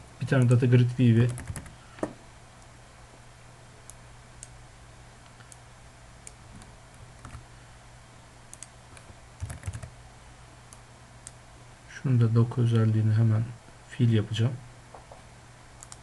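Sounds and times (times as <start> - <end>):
low steady hum: 0.0 - 16.0
computer keyboard clicks: 1.3 - 1.7, 8.6 - 9.9, 15.8 - 16.0
mouse clicks: 8.5 - 9.1, 15.8 - 16.0.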